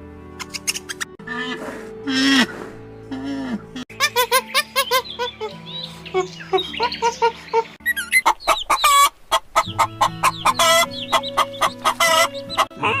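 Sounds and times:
background music: 0.0 - 13.0
hen squawk: 3.2 - 5.5, 6.5 - 13.0
hens clucking: 3.8 - 13.0.

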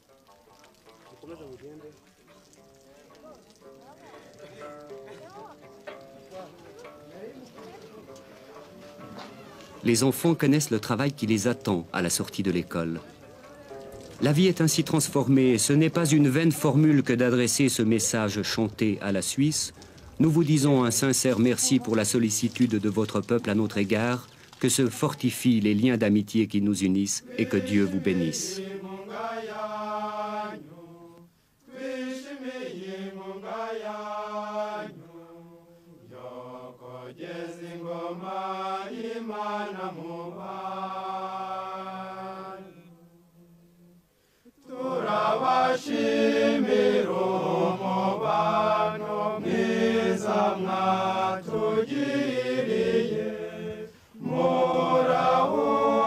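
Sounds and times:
group of men singing: 27.1 - 43.3, 44.6 - 56.0.

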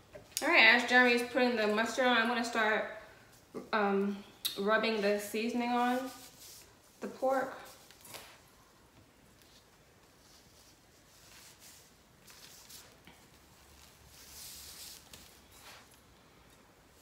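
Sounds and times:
plastic gloves rustling: 4.8 - 17.0.

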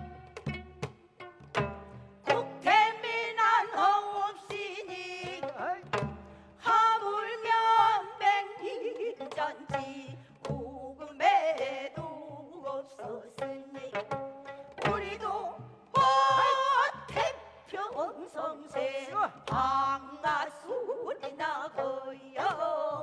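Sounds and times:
drum strokes: 0.0 - 2.8
women singing with wide vibrato: 2.3 - 23.0.

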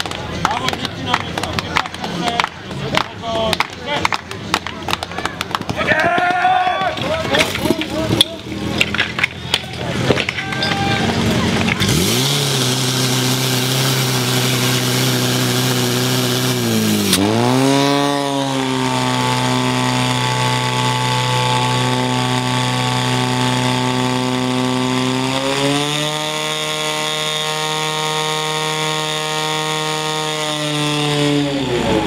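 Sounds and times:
pump engine running at high revs: 10.0 - 32.0.

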